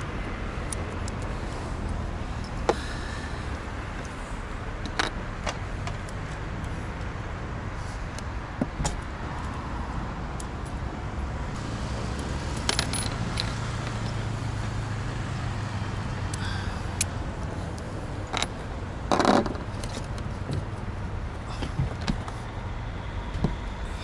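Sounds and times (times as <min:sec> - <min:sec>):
low traffic rumble: 0:00.0 - 0:24.0
metallic clicks and clinks of tools: 0:12.6 - 0:14.2.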